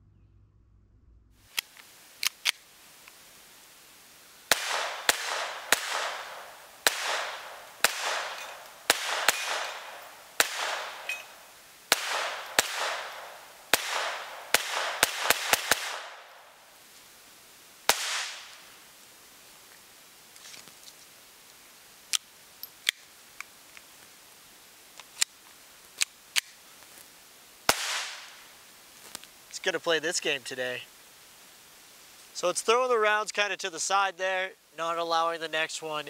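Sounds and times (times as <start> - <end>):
pistol shots with echo: 4.5 - 16.4, 17.9 - 18.5, 27.7 - 28.3.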